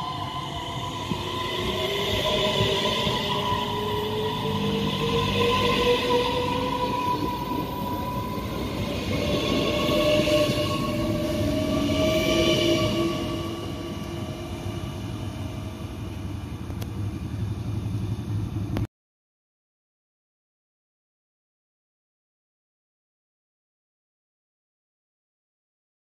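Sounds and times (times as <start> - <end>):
electric train motors whining: 0.0 - 18.6
train wheels rumbling on rails: 0.0 - 18.9.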